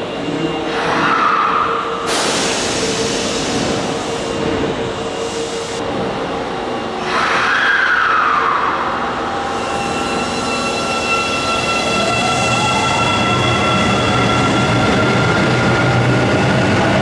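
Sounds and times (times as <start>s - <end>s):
subway train whine: 0.0s - 17.0s
sharp air hiss: 2.1s - 4.4s.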